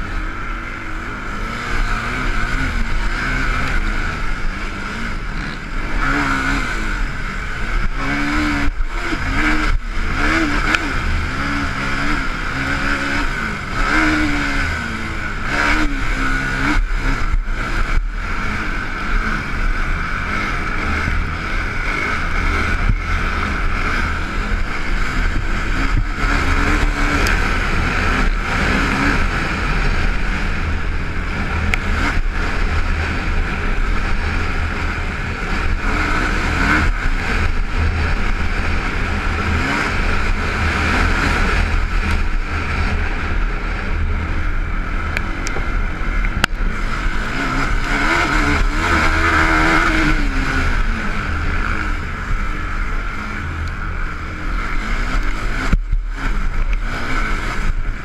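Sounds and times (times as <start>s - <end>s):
quad bike engine revving: 0.0s - 58.0s
knocks from rough dirt track: 54.6s - 58.0s.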